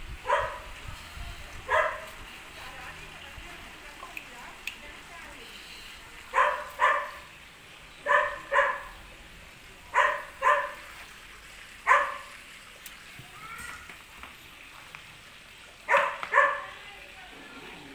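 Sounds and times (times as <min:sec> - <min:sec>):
dog barking: 0:00.2 - 0:00.7, 0:01.7 - 0:02.2, 0:06.3 - 0:07.3, 0:08.0 - 0:08.9, 0:09.9 - 0:10.8, 0:11.8 - 0:12.3, 0:15.9 - 0:16.8.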